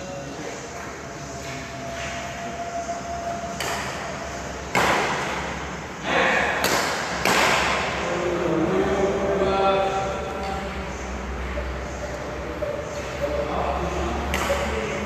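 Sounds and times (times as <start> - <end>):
rackets hitting shuttlecock: 3.5 - 5.6, 6.4 - 8.1, 14.1 - 15.0
faint voices: 8.0 - 15.0.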